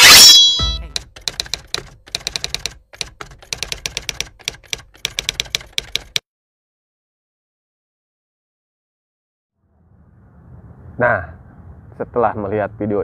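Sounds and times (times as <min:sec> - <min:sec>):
typewriter key clacks: 0:00.9 - 0:06.2.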